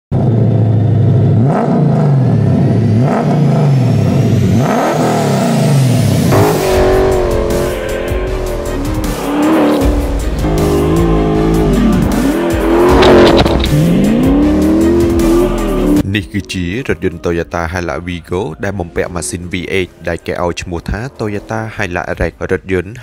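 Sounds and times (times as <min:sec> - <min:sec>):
engine revving: 0:00.2 - 0:16.0
music: 0:04.9 - 0:23.0.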